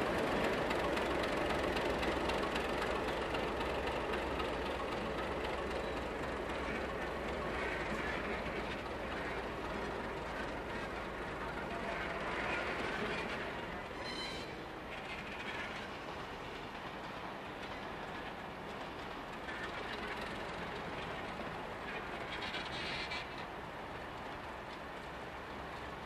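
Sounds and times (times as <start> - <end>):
train wheels rumbling: 0.0 - 26.0
wheels squealing on track: 11.7 - 15.8, 21.9 - 23.5.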